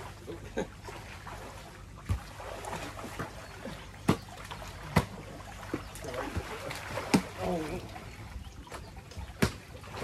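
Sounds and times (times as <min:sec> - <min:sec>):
pool water splashing: 0:00.0 - 0:10.0
sharp slaps on water: 0:02.0 - 0:03.4, 0:04.0 - 0:07.5, 0:08.7 - 0:10.0.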